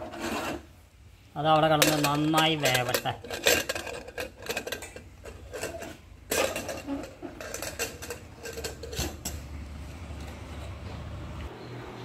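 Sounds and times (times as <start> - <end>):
steel utensils and pots clattering: 1.4 - 9.6.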